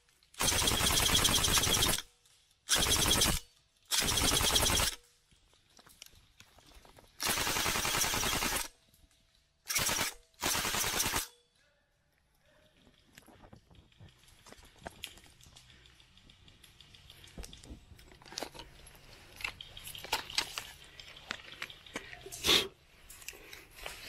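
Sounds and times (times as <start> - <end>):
airsoft rifle full-auto bursts: 0.4 - 2.1, 2.7 - 5.0, 7.2 - 8.7, 9.7 - 11.4.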